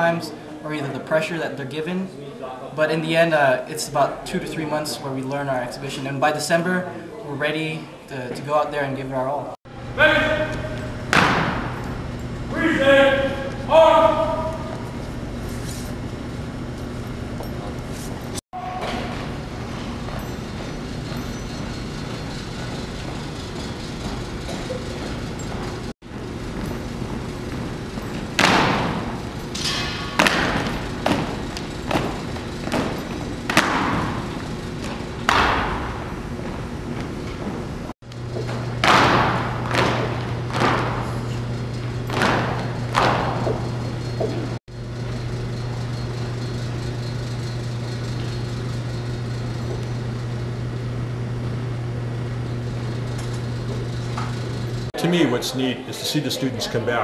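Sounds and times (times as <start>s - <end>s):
steady low hum: 0.0s - 57.0s
feet stomping on hardwood floor: 11.1s - 11.8s, 30.0s - 37.7s, 38.4s - 44.5s.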